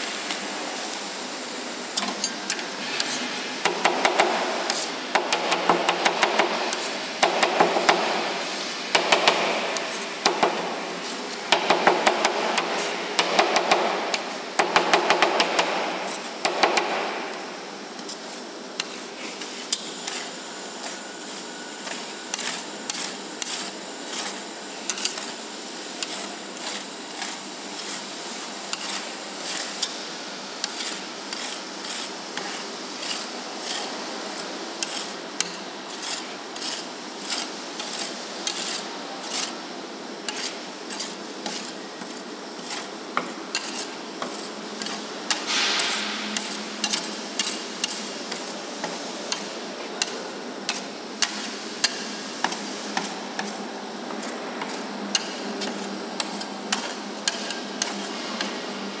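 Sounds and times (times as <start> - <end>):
metal spatula scraping ice cream: 4.7 - 5.0, 18.0 - 30.0, 30.6 - 39.6, 40.2 - 58.5.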